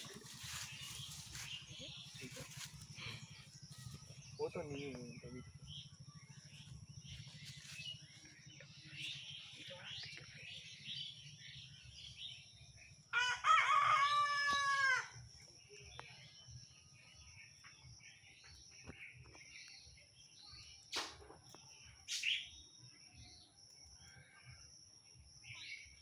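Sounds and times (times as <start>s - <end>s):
small birds chirping: 0.0s - 26.0s
rooster crowing: 13.1s - 15.2s.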